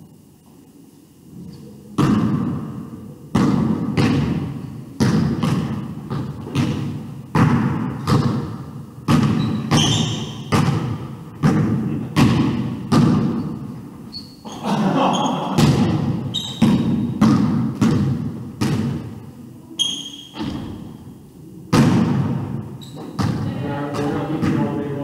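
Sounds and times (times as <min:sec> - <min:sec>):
basketball bouncing on wooden floor: 0:03.4 - 0:13.8, 0:15.5 - 0:19.2, 0:19.8 - 0:21.0, 0:21.7 - 0:24.8.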